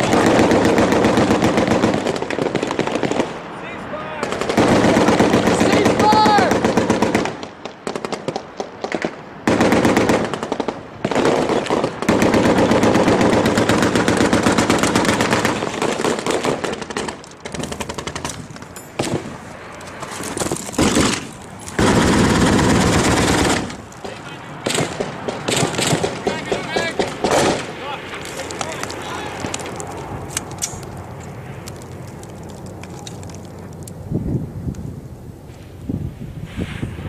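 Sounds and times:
automatic gunfire bursts: 0.0s - 3.3s, 4.2s - 8.4s, 9.0s - 18.4s, 20.8s - 23.8s, 24.6s - 27.7s
single gunshots: 20.8s - 27.8s.

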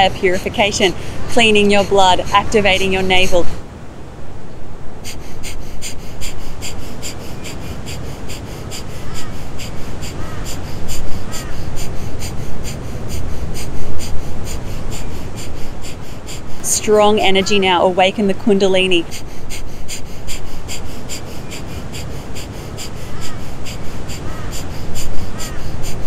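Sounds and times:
rapid forceful nose exhalations: 0.0s - 3.6s, 5.0s - 17.8s, 19.0s - 26.0s.

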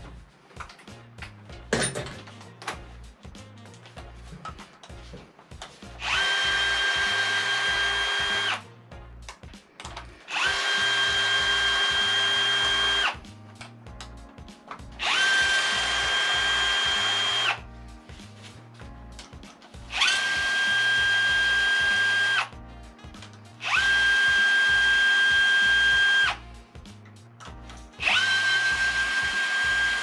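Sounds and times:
cordless drill whining: 6.0s - 8.7s, 9.8s - 13.2s, 15.0s - 17.6s, 19.9s - 22.5s, 23.6s - 26.4s, 27.9s - 30.0s.

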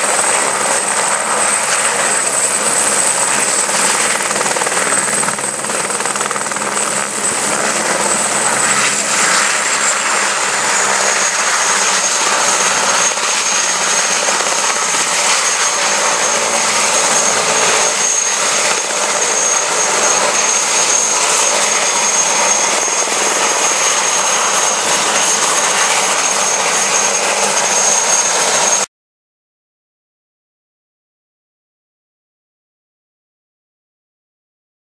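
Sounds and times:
helicopter turbine and rotors: 0.0s - 28.9s.

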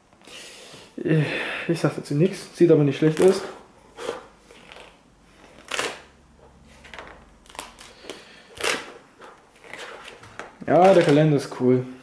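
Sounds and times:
calendar pages flipping: 3.0s - 3.6s, 4.5s - 11.7s.

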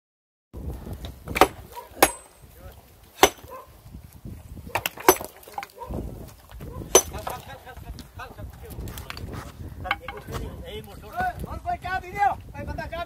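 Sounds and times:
metal tool striking rock: 1.3s - 2.5s, 3.2s - 3.6s, 4.7s - 5.7s, 6.9s - 7.4s, 9.8s - 10.2s
men's voices murmuring: 5.4s - 12.0s.

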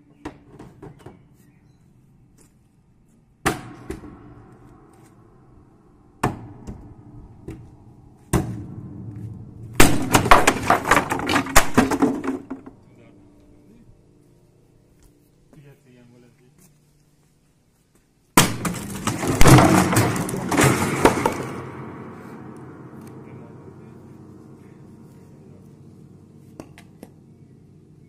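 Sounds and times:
wooden panels cracking and clattering: 9.8s - 12.7s, 18.4s - 21.6s
piano ringing: 19.4s - 28.0s.

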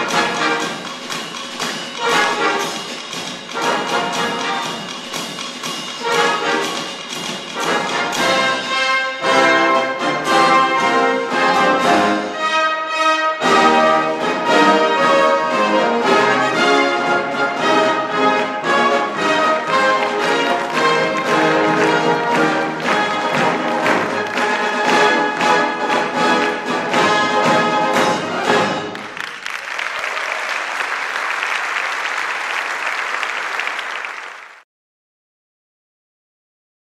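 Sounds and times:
brass band playing chords: 0.0s - 32.9s
applause: 19.6s - 27.2s, 28.0s - 34.6s.

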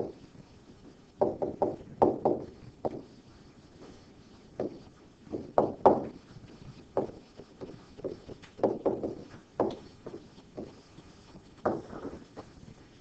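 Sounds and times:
stylus tapping on writing surface: 1.2s - 3.2s, 4.6s - 12.6s.

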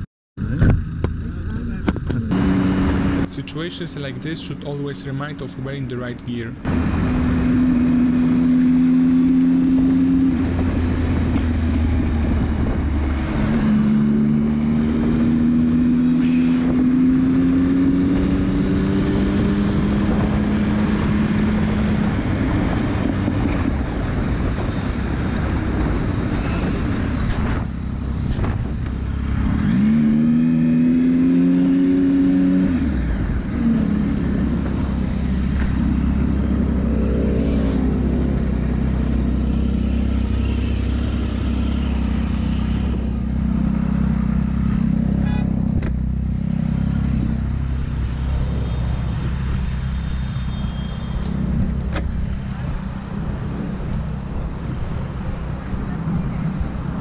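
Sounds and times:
motorcycle engine revving: 0.0s - 5.3s, 6.6s - 57.0s
wind rush: 6.7s - 17.2s, 17.8s - 30.8s.

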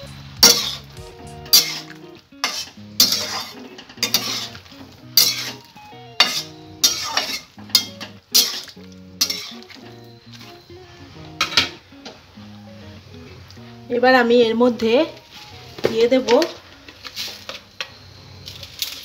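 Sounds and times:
background music: 0.0s - 17.0s
metal spatula scraping a pan: 0.4s - 9.8s.

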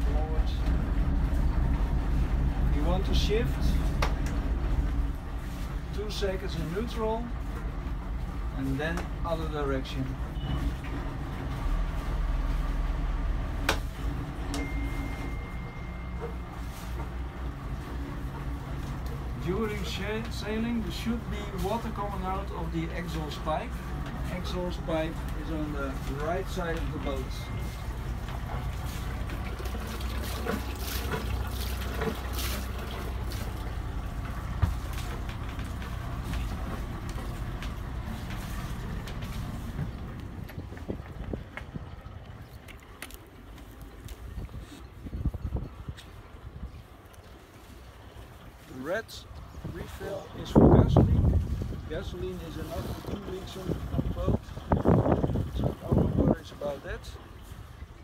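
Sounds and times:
boat engine running at low revs: 0.0s - 58.0s
water splashing from exhaust: 0.0s - 58.0s
faint thin high tone: 14.6s - 16.3s.

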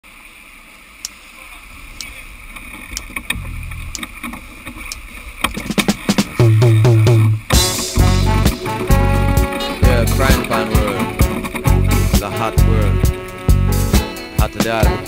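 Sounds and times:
water washing along hull: 0.1s - 15.0s
background music with bass: 3.3s - 4.2s, 6.2s - 15.0s.

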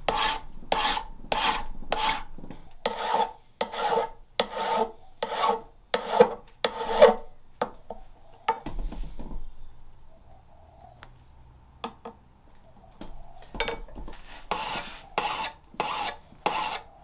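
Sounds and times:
file scraping on steel: 0.0s - 7.3s, 14.5s - 16.9s.

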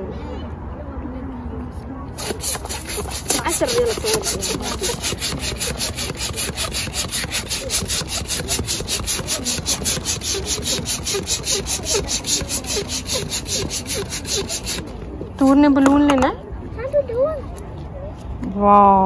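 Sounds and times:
balloon pump rasping whoosh: 2.2s - 15.0s.

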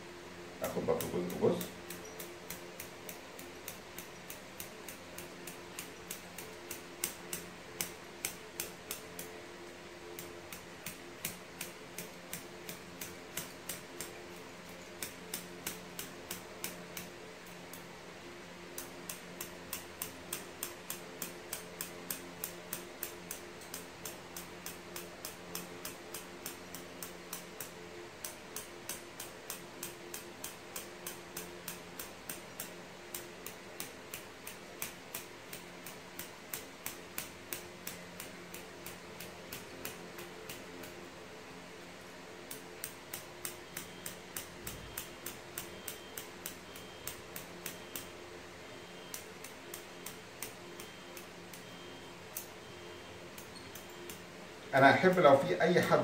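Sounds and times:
low steady hum: 0.0s - 56.0s
regular ticking: 0.6s - 17.9s.

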